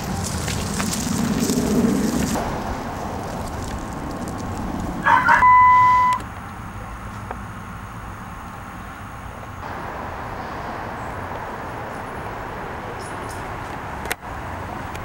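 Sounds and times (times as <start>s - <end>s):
rustling: 0.0s - 5.0s
electronic beep: 5.1s - 6.2s.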